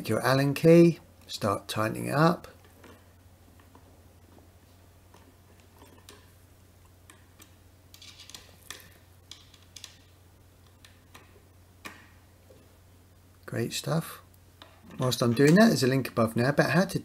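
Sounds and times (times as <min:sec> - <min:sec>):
small metal clicks: 0:07.1 - 0:12.1.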